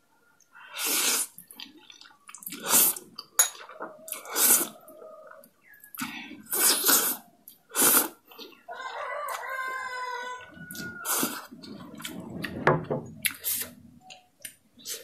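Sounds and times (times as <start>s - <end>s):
noodles slurping: 4.1s - 4.9s, 5.9s - 8.6s, 10.7s - 12.6s.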